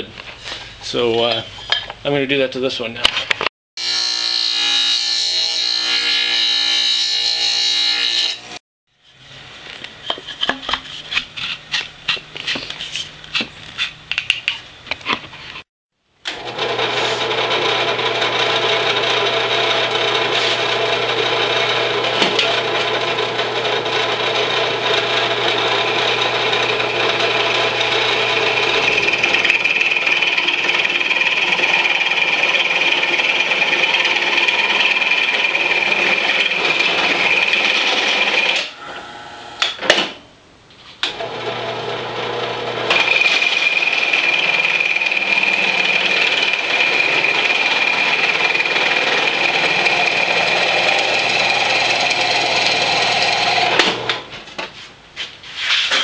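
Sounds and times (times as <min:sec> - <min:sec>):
drill press grinding whine: 0:16.3 - 0:39.6, 0:41.0 - 0:54.2.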